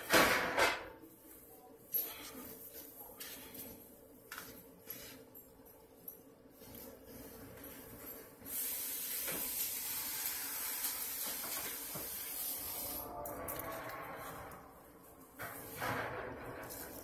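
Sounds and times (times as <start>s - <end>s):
steady hiss: 8.4s - 13.1s.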